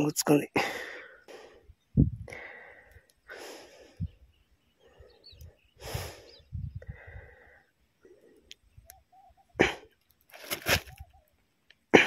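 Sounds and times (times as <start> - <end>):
man breathing hard: 0.6 - 4.2, 4.8 - 8.5.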